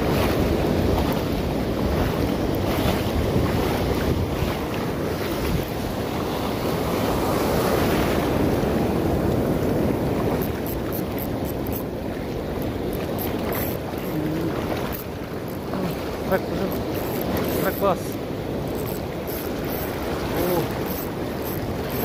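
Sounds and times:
sea surf breaking: 0:00.0 - 0:22.0
wind buffeting microphone: 0:00.0 - 0:22.0.

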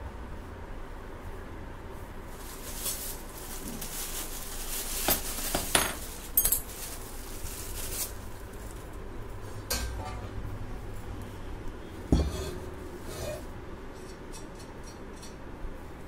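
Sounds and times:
plastic bag crinkling: 0:02.3 - 0:09.1
metal parts clinking: 0:05.1 - 0:06.9.

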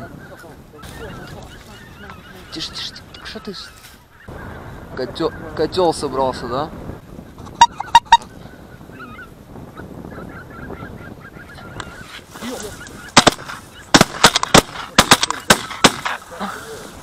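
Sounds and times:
geese honking: 0:00.0 - 0:06.0, 0:07.4 - 0:16.7
shotgun shots: 0:13.2 - 0:16.2.

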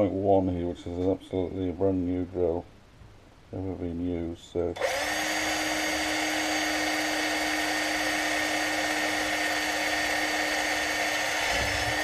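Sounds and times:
cordless drill whining: 0:04.8 - 0:12.0.

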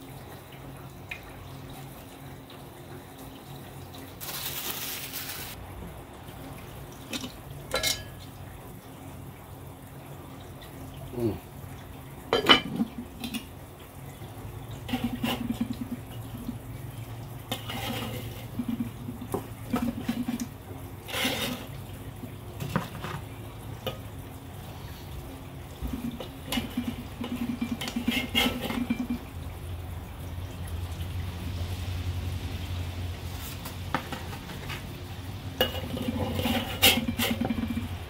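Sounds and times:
metal tongs clanking on grill: 0:07.7 - 0:08.2.

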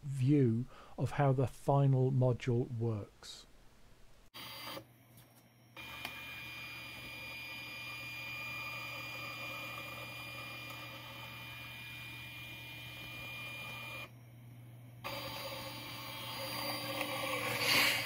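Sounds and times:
stepper motor whining: 0:05.8 - 0:14.1, 0:15.0 - 0:18.0.

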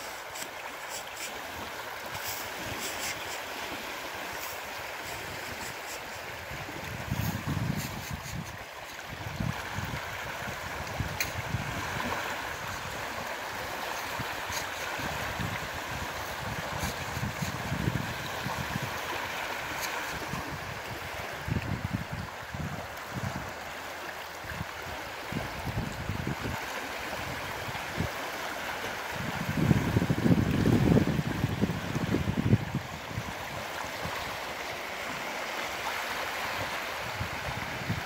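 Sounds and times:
small waves lapping over stones: 0:00.0 - 0:38.0
wind buffeting microphone: 0:06.4 - 0:13.0, 0:14.2 - 0:19.0, 0:20.1 - 0:23.6, 0:25.3 - 0:26.6, 0:29.2 - 0:33.8, 0:37.0 - 0:38.0.

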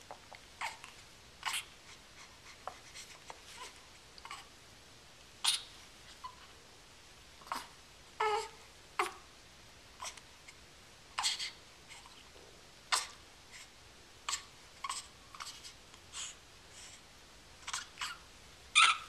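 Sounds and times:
baby making breathy noises: 0:00.6 - 0:04.5, 0:11.2 - 0:12.2.

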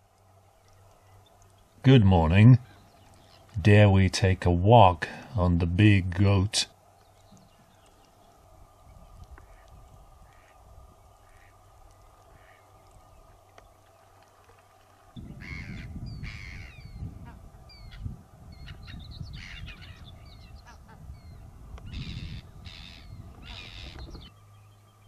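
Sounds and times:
harsh bird caws: 0:09.4 - 0:12.8, 0:15.3 - 0:21.0, 0:21.8 - 0:24.2.

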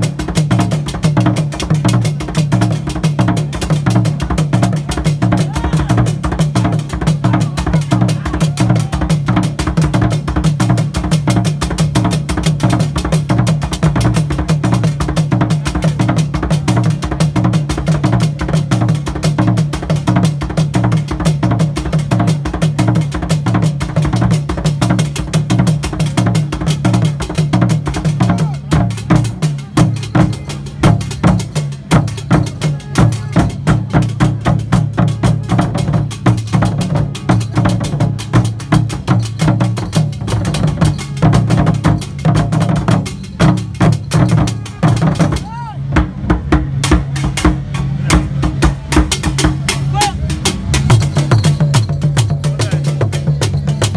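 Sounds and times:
barrel drum ensemble rhythm: 0:00.0 - 0:53.9.

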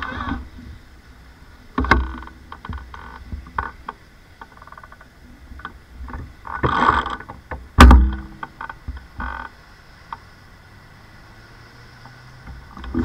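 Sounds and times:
camera knocks and rattles: 0:05.6 - 0:09.3.

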